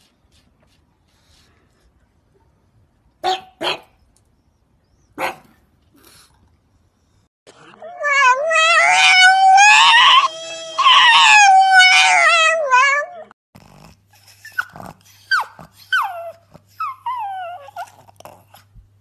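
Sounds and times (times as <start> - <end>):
dog whining: 7.5 - 13.4, 14.1 - 18.7
dog howling: 7.7 - 13.4.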